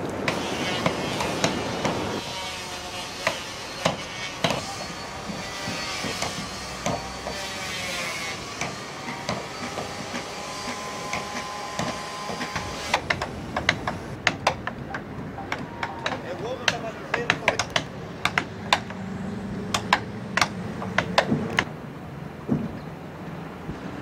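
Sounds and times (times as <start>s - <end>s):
hammering on wooden hull: 0.3s - 2.1s, 3.2s - 7.6s, 8.6s - 19.0s, 19.7s - 21.7s.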